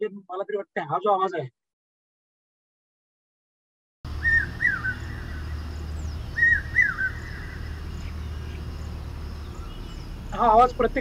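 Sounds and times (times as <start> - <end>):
hawk-cuckoo calling: 4.1 - 10.6
low recording hum: 4.1 - 11.0.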